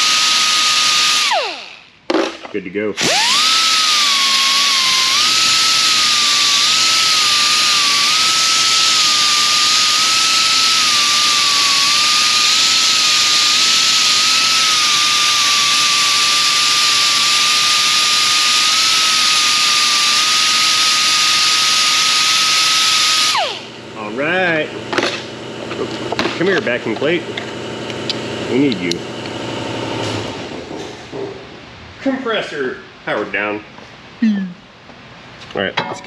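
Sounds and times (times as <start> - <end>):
die grinder high whine: 0.0 - 1.9, 3.0 - 30.6.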